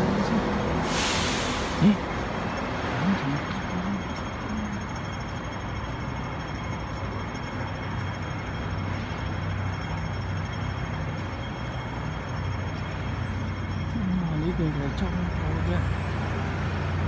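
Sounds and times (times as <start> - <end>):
faint high steady tones: 0.0 - 17.0.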